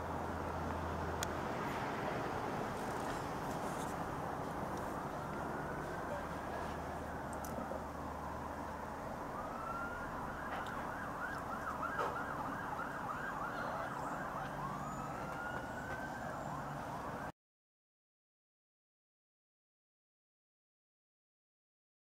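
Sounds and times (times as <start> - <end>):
emergency vehicle siren: 0.0 - 17.3.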